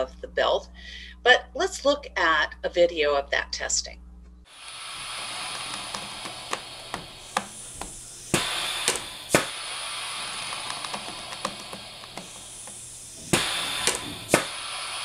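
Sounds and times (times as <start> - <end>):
steady hiss: 4.5 - 15.0.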